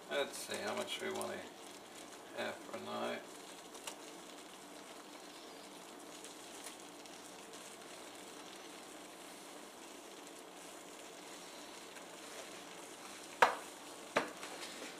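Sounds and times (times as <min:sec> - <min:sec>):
gravy simmering in a pan: 0:00.0 - 0:14.9.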